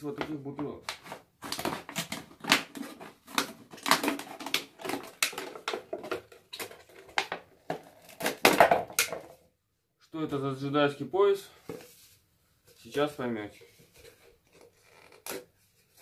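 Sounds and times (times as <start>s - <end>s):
knife cutting plastic bottle: 0.8s - 9.3s, 14.5s - 16.0s.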